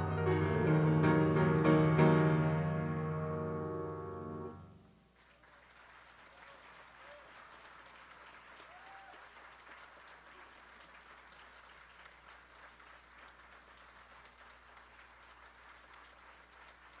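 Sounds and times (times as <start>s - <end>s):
audience applauding: 5.1s - 17.0s.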